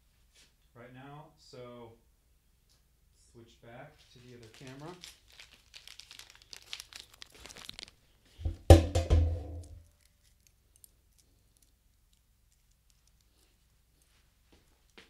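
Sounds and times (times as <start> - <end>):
packaging crinkling: 4.2 - 8.4.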